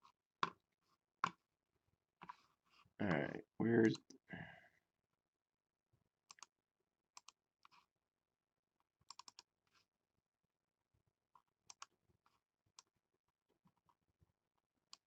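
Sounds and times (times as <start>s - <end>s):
computer clicking: 9.1s - 9.5s.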